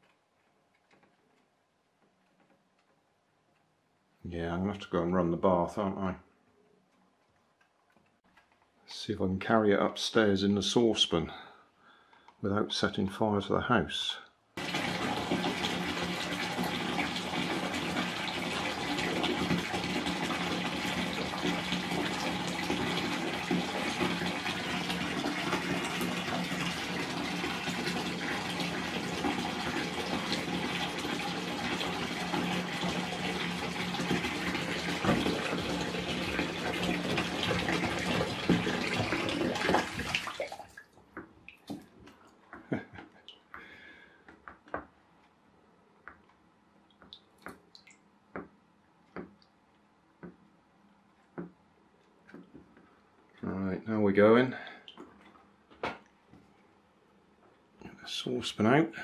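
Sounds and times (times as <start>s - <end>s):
bath tap running: 14.6s - 41.9s, 42.6s - 44.1s.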